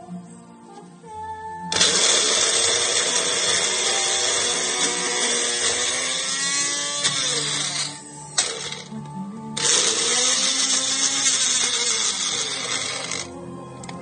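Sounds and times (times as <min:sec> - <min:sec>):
blender pureeing: 0:01.7 - 0:08.9, 0:09.6 - 0:13.3.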